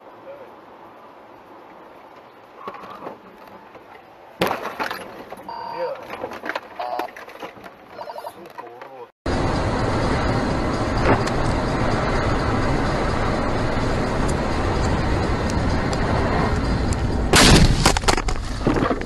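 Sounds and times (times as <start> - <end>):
car road and engine noise: 0.0 - 19.0
car crash impact: 4.4 - 5.4, 17.3 - 19.0
sharp cracks and clatters: 14.2 - 19.0.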